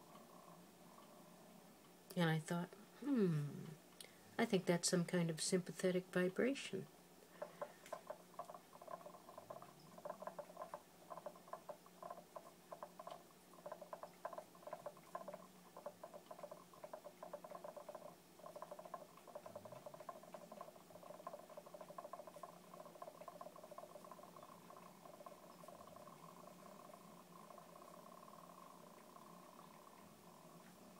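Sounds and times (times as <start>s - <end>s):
faint steady hum: 0.0s - 30.9s
stone sphere rattling against glass: 7.4s - 29.9s.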